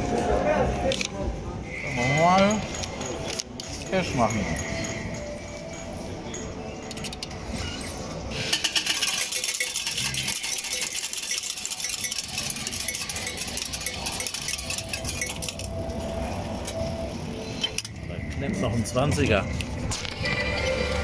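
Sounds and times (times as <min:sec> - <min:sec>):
coins clattering into metal tray: 0:08.3 - 0:15.9.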